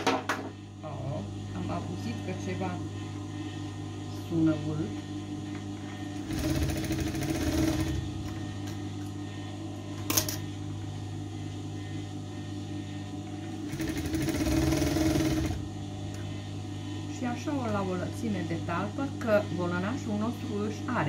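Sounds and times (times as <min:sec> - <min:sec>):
steady low hum: 0:00.0 - 0:21.0
sewing machine stitching: 0:06.2 - 0:08.0, 0:13.7 - 0:15.6.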